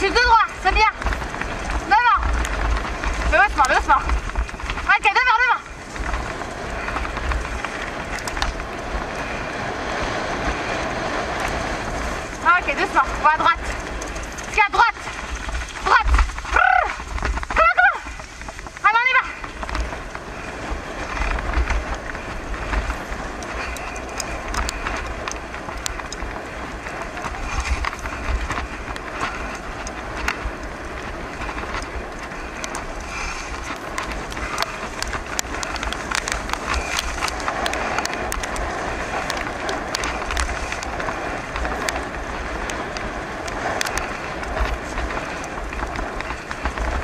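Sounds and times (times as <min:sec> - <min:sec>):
bicycle tyres rolling on gravel: 0:00.0 - 0:47.0
grit and bike rattles: 0:00.0 - 0:47.0
wind rumbling on microphone: 0:00.0 - 0:47.0.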